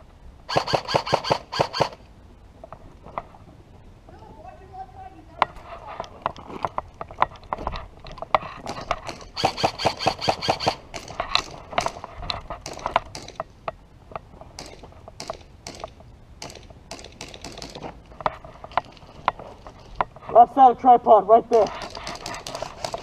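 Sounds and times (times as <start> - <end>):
airsoft rifle shots clicking: 0.5 - 2.0, 9.1 - 12.0, 12.6 - 13.5, 14.6 - 17.8.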